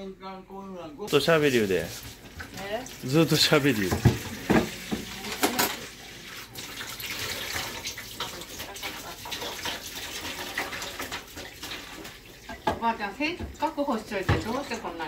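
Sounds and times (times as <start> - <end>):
tap running into sink: 3.6 - 5.8, 12.5 - 14.7.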